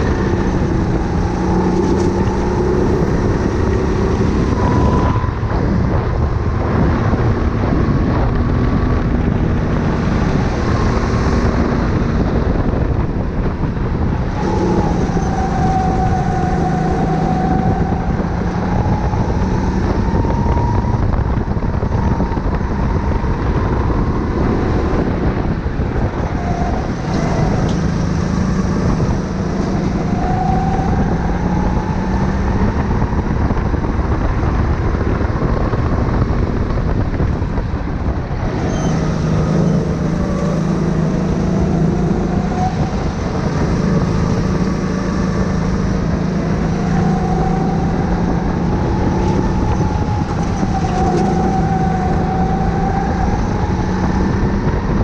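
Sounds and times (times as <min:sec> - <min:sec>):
go-kart engine revving: 0:00.0 - 0:36.2.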